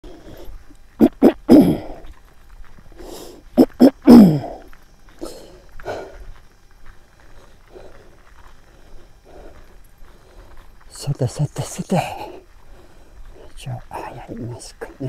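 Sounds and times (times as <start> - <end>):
man clearing his throat: 1.0 - 2.0, 3.6 - 4.6
man coughing: 1.0 - 2.0, 3.6 - 4.6.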